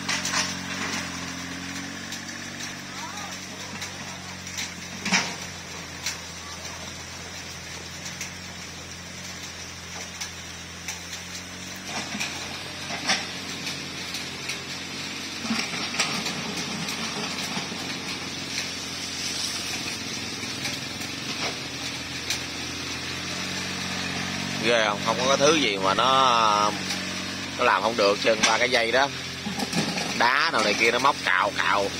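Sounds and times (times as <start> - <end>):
bucket scraping dirt: 0.0 - 6.4, 11.4 - 31.9
small diesel engine running: 0.0 - 31.9
motorbike passing: 11.5 - 31.9.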